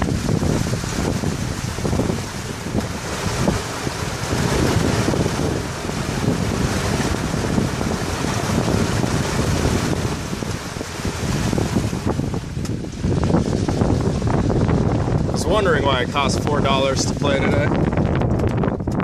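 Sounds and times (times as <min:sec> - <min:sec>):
tyres sloshing through water: 0:00.0 - 0:14.3
wind buffeting microphone: 0:00.0 - 0:19.0.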